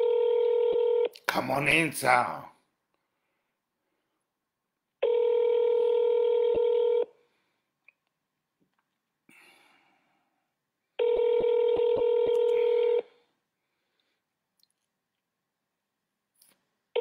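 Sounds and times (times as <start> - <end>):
telephone ringing tone: 0.0 - 1.1, 5.0 - 7.1, 11.0 - 13.2.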